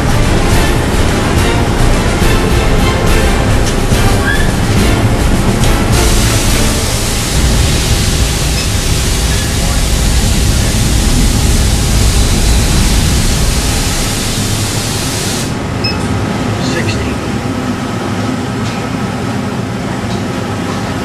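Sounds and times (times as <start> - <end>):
machinery rushing hiss: 0.0 - 15.8.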